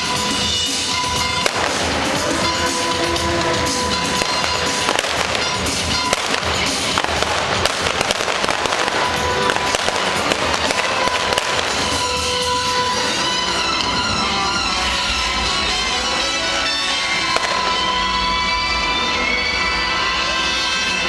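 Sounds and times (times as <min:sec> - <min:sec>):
loud show music: 0:00.0 - 0:21.0
pyrotechnic pops and bangs: 0:01.4 - 0:02.2, 0:04.2 - 0:12.2.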